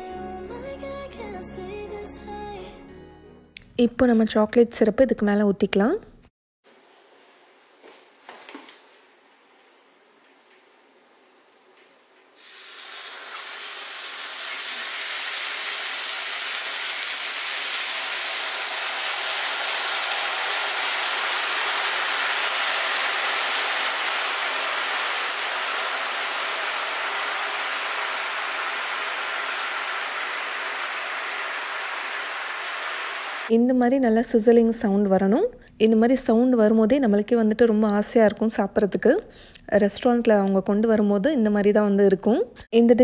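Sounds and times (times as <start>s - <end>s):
sauce sizzling on hot iron: 6.7s - 33.5s.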